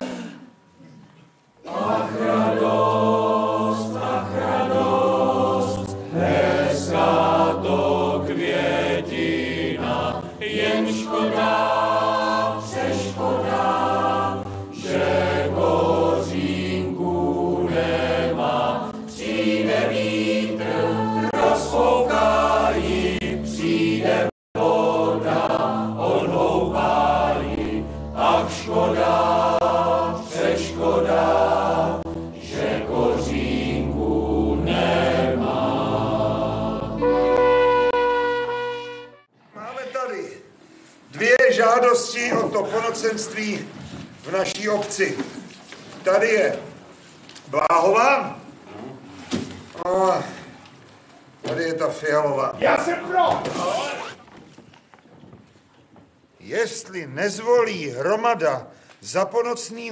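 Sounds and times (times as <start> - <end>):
mixed choir singing folk song: 1.6 - 39.3
low accordion notes: 29.1 - 39.3.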